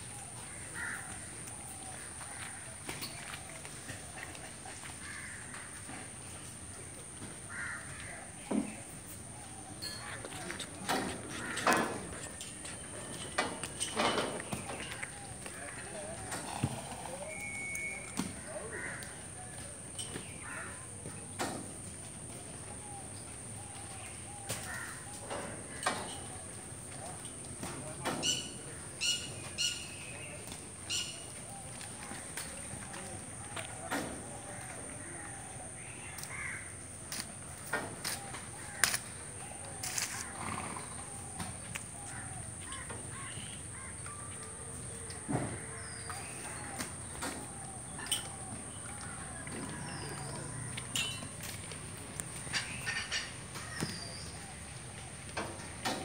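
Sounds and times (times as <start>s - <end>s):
outdoor background noise: 0.0s - 56.0s.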